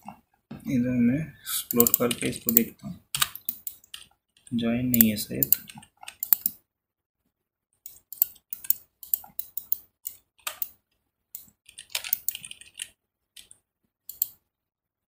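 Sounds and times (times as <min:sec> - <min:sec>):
mouse clicks: 0:01.6 - 0:06.6, 0:07.9 - 0:10.8, 0:11.4 - 0:14.4
keyboard keystrokes: 0:01.7 - 0:06.6, 0:11.4 - 0:14.4.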